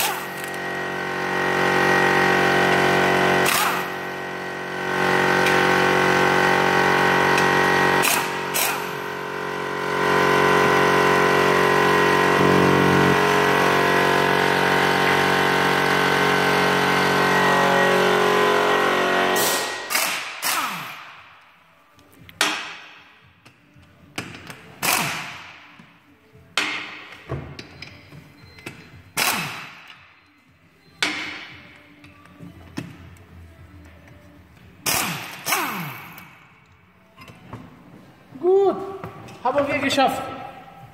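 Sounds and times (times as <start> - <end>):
workshop machine humming: 0.0 - 22.8.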